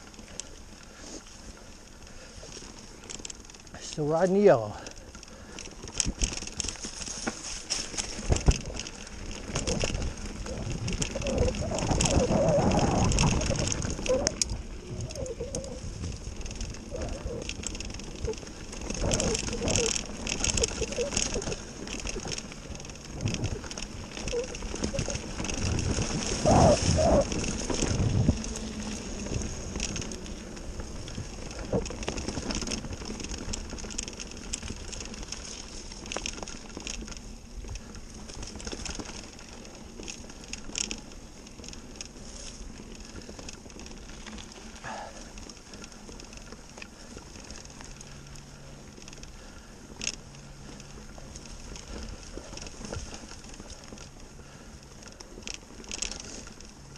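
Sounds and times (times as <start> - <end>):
bike clicks and rattles: 0.0 - 56.9
bike tyres rolling over dirt and leaves: 0.0 - 56.9.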